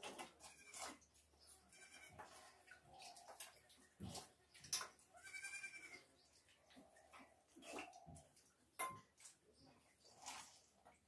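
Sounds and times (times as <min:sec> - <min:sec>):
goat bleating: 0:01.6 - 0:02.2, 0:05.1 - 0:06.1.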